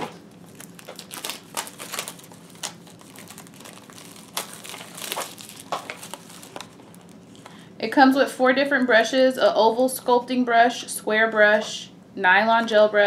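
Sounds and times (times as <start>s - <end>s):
plastic shrink wrap crinkling: 0.2s - 7.6s.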